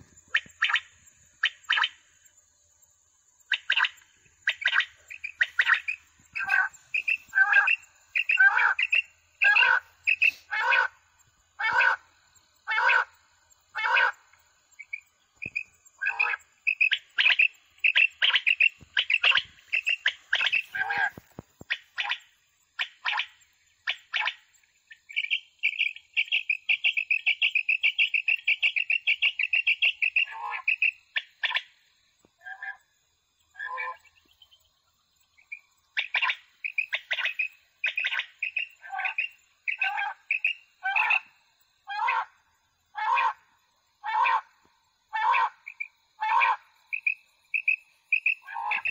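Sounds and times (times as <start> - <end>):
quail calls through loudspeaker: 4.5 - 11.0, 11.6 - 12.0, 12.7 - 13.1, 13.8 - 14.2, 16.0 - 22.2, 27.3 - 31.6, 33.6 - 34.0, 36.0 - 41.2, 41.9 - 42.3, 43.0 - 43.4, 44.0 - 44.5, 45.1 - 46.6, 47.6 - 48.9.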